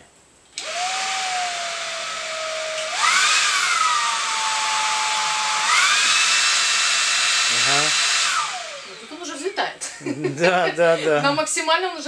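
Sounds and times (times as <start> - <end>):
vacuum cleaner motor whine: 0.6 - 9.7.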